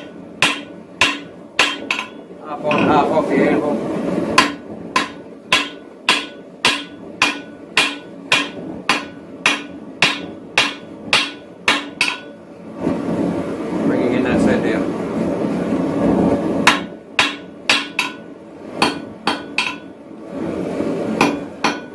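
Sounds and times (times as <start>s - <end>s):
metallic ring: 0.0s - 3.0s
hammer striking hot metal on anvil: 0.0s - 3.3s, 4.3s - 12.4s, 16.6s - 20.0s, 21.1s - 21.9s.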